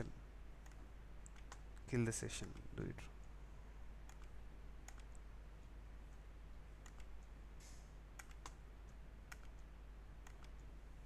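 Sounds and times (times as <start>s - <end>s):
low steady hum: 0.0s - 11.0s
mouse and keyboard clicking: 0.6s - 1.8s, 4.0s - 5.8s, 6.8s - 7.4s, 8.2s - 10.7s.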